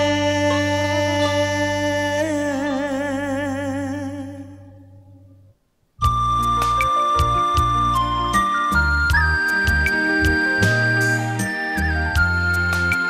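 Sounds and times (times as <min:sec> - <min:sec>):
person singing with vibrato: 0:00.0 - 0:05.5.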